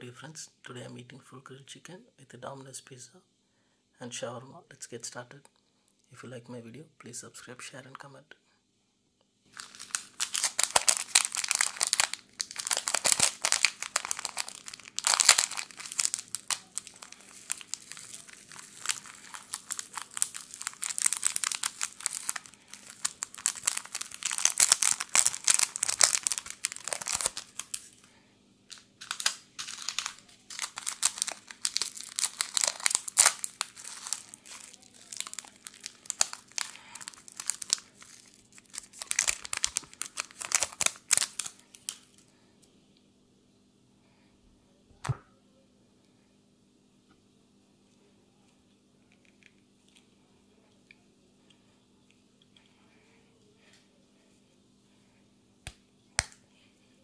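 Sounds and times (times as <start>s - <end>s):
plastic sachets crinkling and tearing: 9.5s - 28.1s, 28.7s - 42.2s.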